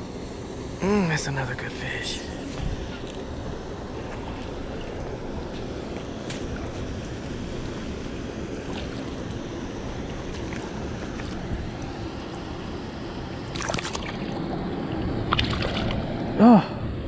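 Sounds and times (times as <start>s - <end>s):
fish splashing: 2.3s - 12.5s, 13.4s - 16.2s
feet wading through water: 2.3s - 12.7s, 13.4s - 16.3s
water rushing over concrete spillway: 3.7s - 16.6s.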